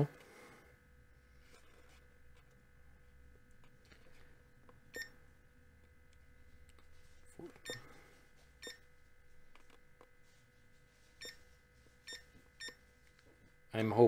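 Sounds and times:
alarm clock beeps: 4.9 - 5.2, 7.6 - 7.9, 8.6 - 8.9, 11.2 - 11.4, 12.0 - 12.8.

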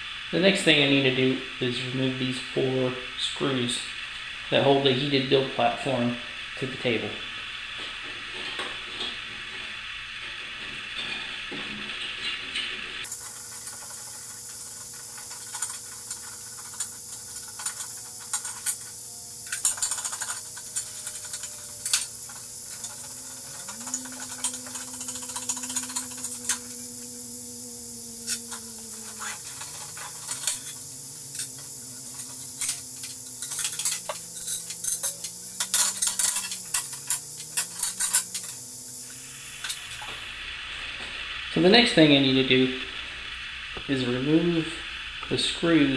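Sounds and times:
steady hiss: 0.0 - 45.9
screwdriver work: 13.1 - 40.0.

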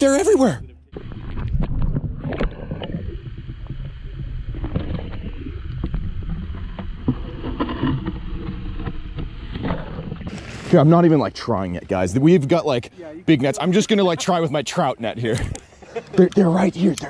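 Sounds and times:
muffled underwater river rumble: 0.6 - 12.5.

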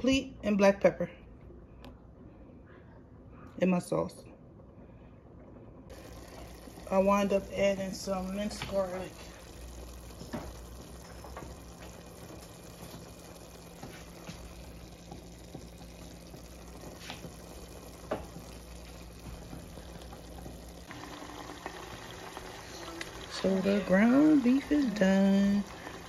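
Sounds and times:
meat sizzling in a frying pan: 5.9 - 26.0.

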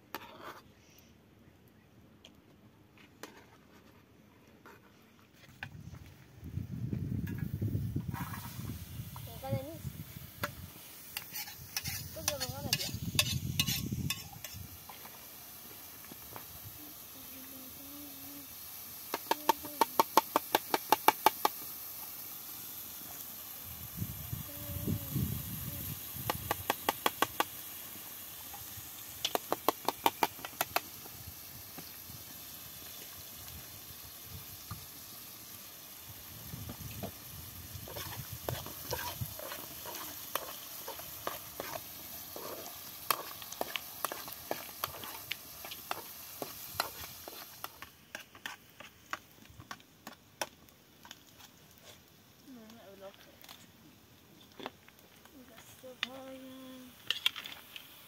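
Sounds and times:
frying sizzle: 7.2 - 53.6, 54.5 - 58.0
spoon scraping and tapping a pot: 11.2 - 14.6.

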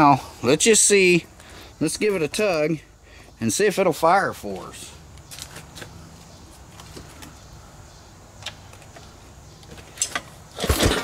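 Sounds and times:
recoil starter rope pull: 10.0 - 11.0.

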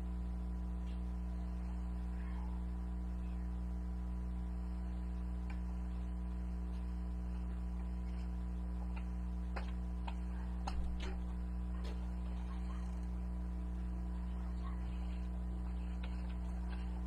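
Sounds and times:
steady low hum: 0.0 - 17.0
faint clicks and ticks: 5.3 - 17.0.

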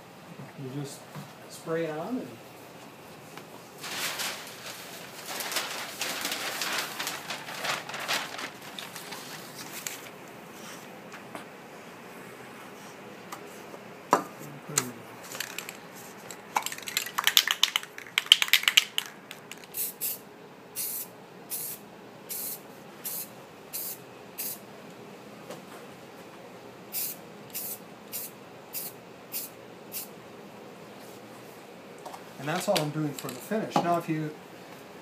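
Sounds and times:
aerosol can rattling: 15.3 - 15.8, 16.6 - 19.9
spray paint hissing bursts: 19.7 - 20.2, 20.8 - 24.6, 26.9 - 30.1.

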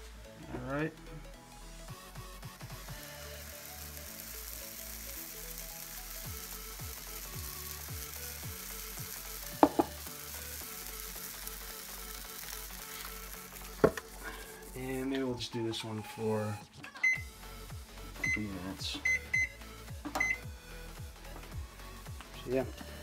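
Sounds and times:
batter sizzling on waffle iron: 2.0 - 15.2
sharp knocks: 9.6 - 9.9.

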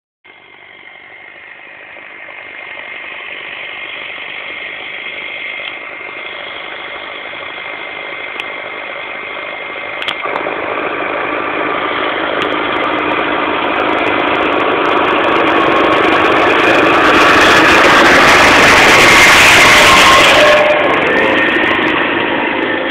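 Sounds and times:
tractor diesel engine running: 0.2 - 22.9.

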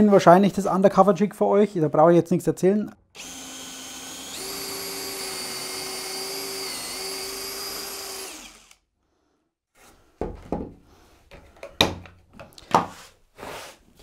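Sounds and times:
cordless drill boring into wood: 3.2 - 8.8.

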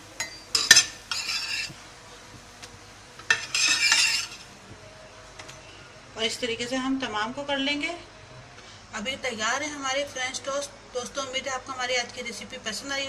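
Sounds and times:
spatula clinking on pan: 0.2 - 1.7, 3.3 - 4.5
spatula scraping frying pan: 0.6 - 1.8, 3.3 - 4.5.

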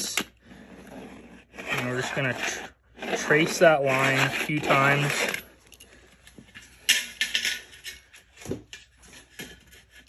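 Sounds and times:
roller scraping on sheet metal: 0.0 - 5.5.

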